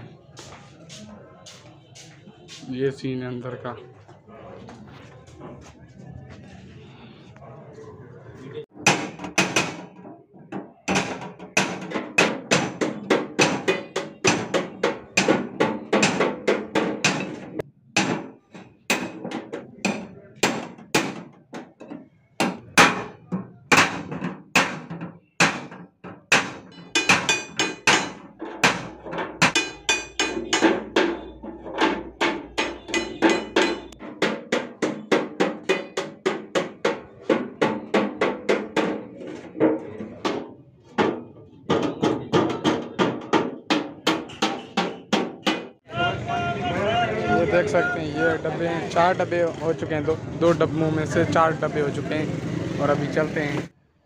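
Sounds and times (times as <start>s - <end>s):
hammer on sheet metal: 8.8s - 45.8s.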